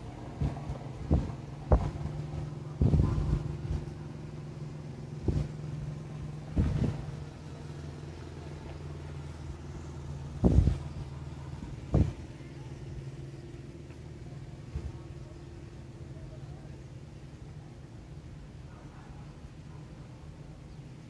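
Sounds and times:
engine running: 0:00.0 - 0:21.0
thumps and knocks: 0:00.4 - 0:02.1.

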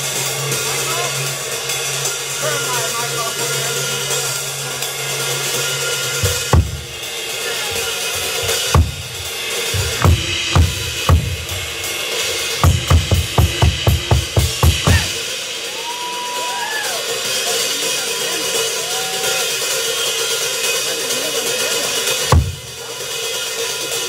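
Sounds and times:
heavy drum strikes: 0:06.1 - 0:15.6, 0:22.3 - 0:23.0
drum rumble: 0:06.2 - 0:15.3, 0:22.3 - 0:22.8.

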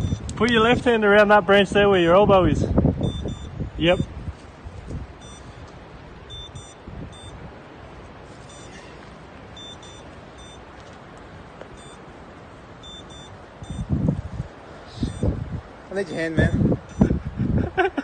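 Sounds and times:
short high-pitched beeps: 0:00.0 - 0:00.4, 0:03.0 - 0:04.1, 0:05.2 - 0:05.6, 0:06.3 - 0:07.4, 0:08.4 - 0:08.8, 0:09.5 - 0:10.7, 0:11.8 - 0:12.0, 0:12.8 - 0:13.9, 0:14.9 - 0:15.4, 0:16.9 - 0:17.2
wind: 0:00.0 - 0:18.0
branches rustling: 0:02.7 - 0:16.3.

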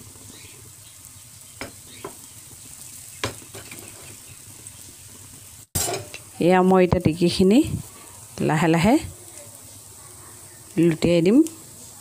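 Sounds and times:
patties sizzling in oil: 0:00.0 - 0:12.0
light taps on pan: 0:03.2 - 0:03.8.

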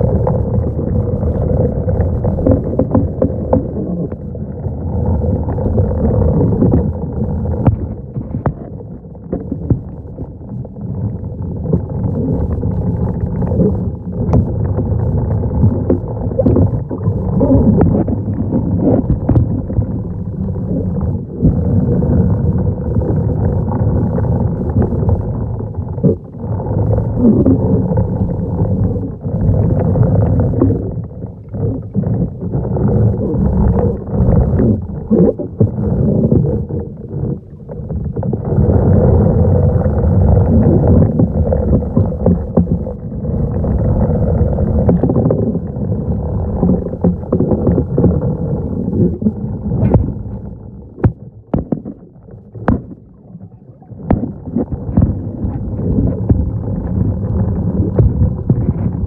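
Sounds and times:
muffled underwater rumble: 0:00.0 - 0:59.0
water swishing: 0:00.0 - 0:59.0.

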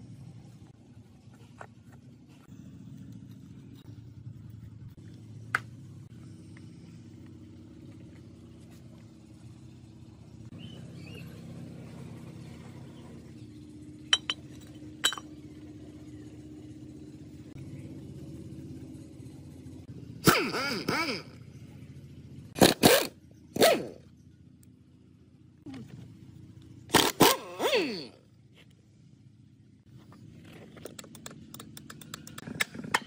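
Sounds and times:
steady low hum: 0:00.0 - 0:33.0
sharp metallic clinks of parts: 0:14.1 - 0:15.3.

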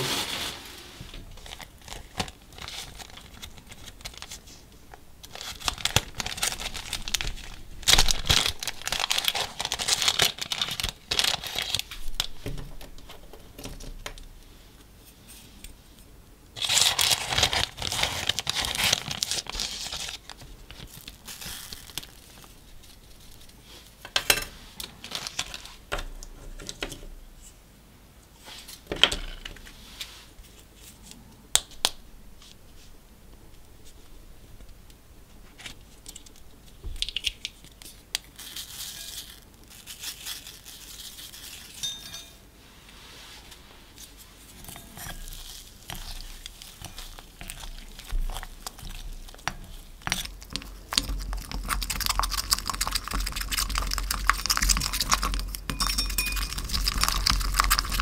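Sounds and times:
plastic zip bag crinkling: 0:00.0 - 0:04.5, 0:05.2 - 0:13.2, 0:16.6 - 0:23.6, 0:44.5 - 0:55.7.

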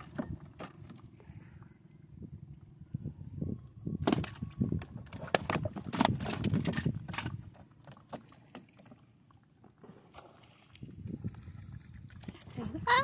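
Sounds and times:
fish slapping against wooden hull: 0:04.0 - 0:09.0.

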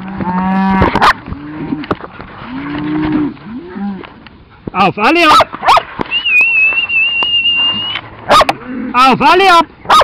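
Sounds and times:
cattle mooing: 0:00.0 - 0:04.2, 0:07.5 - 0:09.2.

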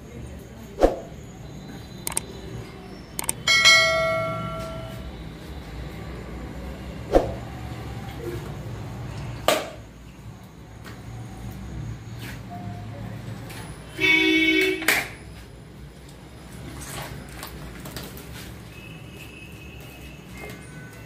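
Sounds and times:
metallic ring: 0:03.4 - 0:05.0.

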